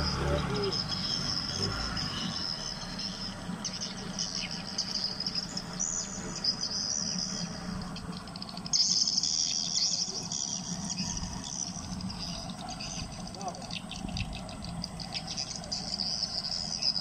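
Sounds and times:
insects buzzing trill: 0:00.0 - 0:17.0.

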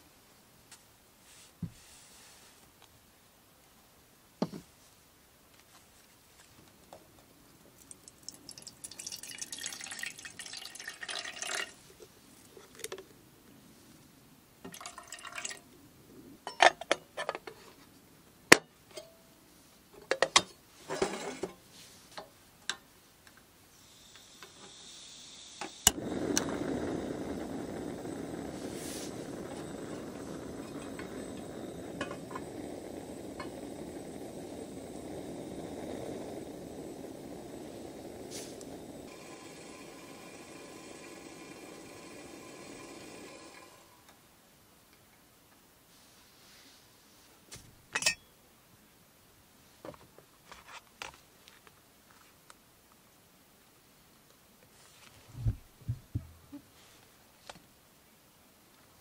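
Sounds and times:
water pouring into kettle: 0:07.8 - 0:11.8, 0:14.7 - 0:15.6, 0:24.5 - 0:43.9
gas hissing from cartridge: 0:23.7 - 0:44.0
gas burner hissing: 0:23.7 - 0:44.1.

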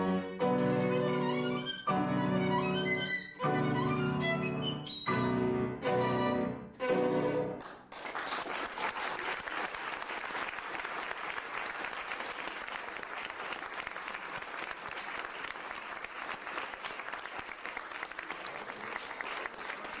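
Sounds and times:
violin bowed note: 0:00.0 - 0:07.6
audience applause: 0:07.6 - 0:20.0.

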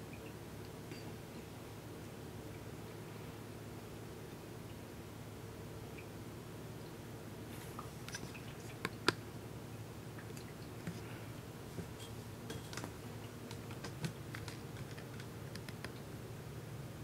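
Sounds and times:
humidifier low hum: 0:00.0 - 0:17.0
small clicks and ticks: 0:12.5 - 0:16.1.

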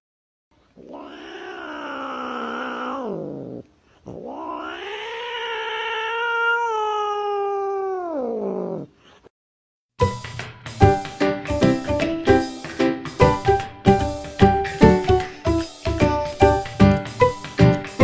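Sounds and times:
cat meowing: 0:00.7 - 0:09.3.

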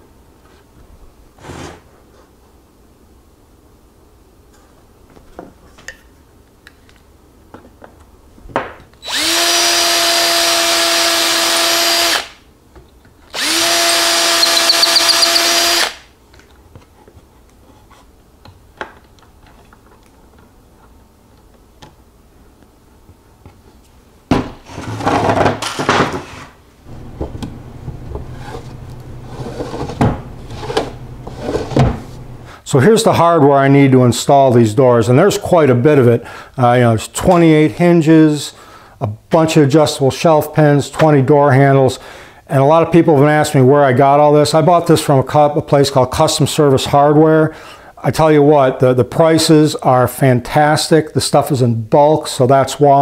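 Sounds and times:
cordless drill running: 0:09.0 - 0:12.4, 0:13.3 - 0:16.0, 0:26.9 - 0:31.6
wooden drawer knocking and sliding: 0:27.2 - 0:32.2.

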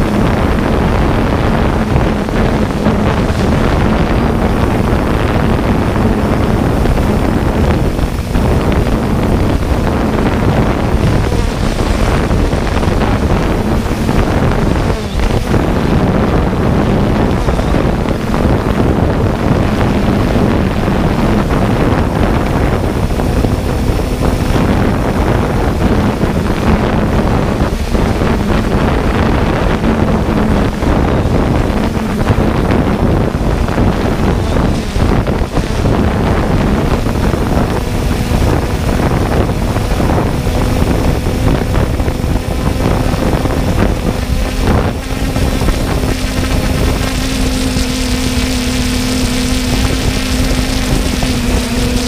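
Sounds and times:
drone propellers humming: 0:00.0 - 0:52.0
wind rushing over microphone: 0:00.0 - 0:52.0.

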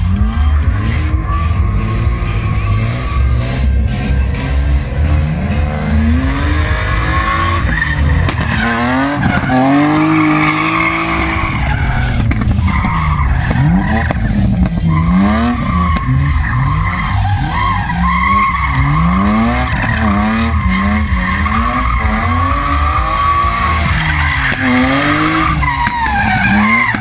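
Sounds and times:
car engine revving: 0:00.0 - 0:27.0
tyres squealing: 0:06.0 - 0:27.0.

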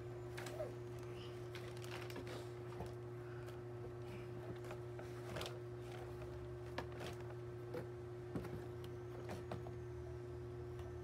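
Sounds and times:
steady low hum: 0:00.0 - 0:11.0
plastic wrapping rustling: 0:00.3 - 0:03.0.

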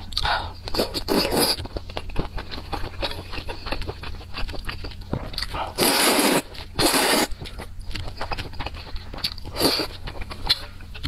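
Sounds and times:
chewing: 0:00.0 - 0:11.0
person slurping noodles: 0:00.8 - 0:01.6, 0:05.7 - 0:07.4, 0:09.6 - 0:09.9.

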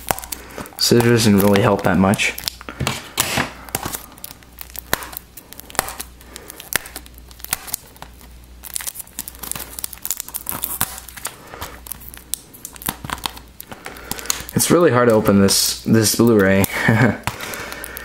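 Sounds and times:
shrink-wrap crinkling and tearing: 0:00.0 - 0:18.0.

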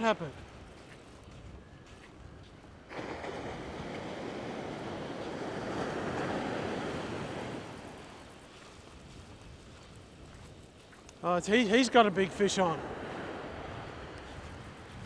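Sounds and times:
wave breaking and washing up: 0:02.9 - 0:09.1, 0:11.2 - 0:15.0.

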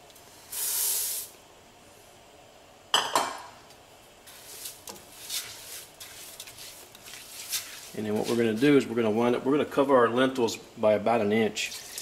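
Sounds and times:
clank on a steel pot: 0:03.0 - 0:03.5.

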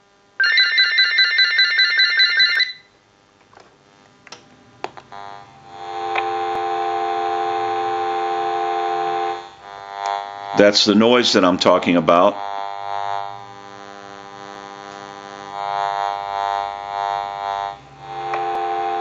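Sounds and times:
dial tone: 0:00.4 - 0:02.9
phone ringing electronic warble: 0:00.4 - 0:03.0
buzzy hum: 0:02.7 - 0:19.0.

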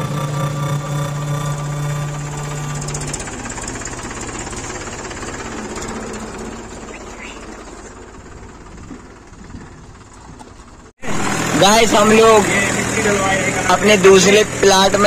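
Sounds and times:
tractor diesel engine clattering: 0:00.0 - 0:15.0.

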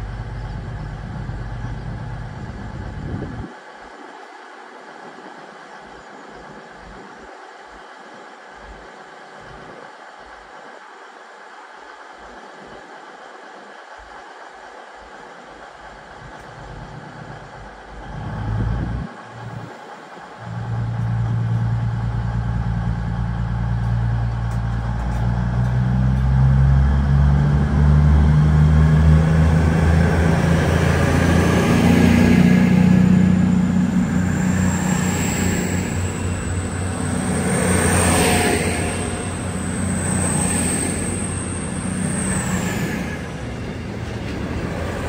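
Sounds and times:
diesel train engine throbbing: 0:00.0 - 0:45.0
thin high whine: 0:29.8 - 0:45.0.

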